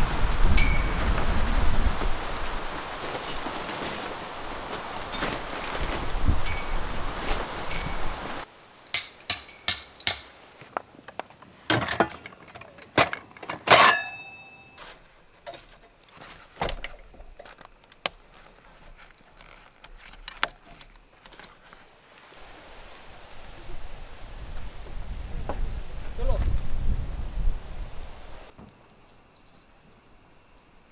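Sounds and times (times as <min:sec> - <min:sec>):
ringing metallic clank: 0:00.6 - 0:01.0, 0:13.7 - 0:14.8.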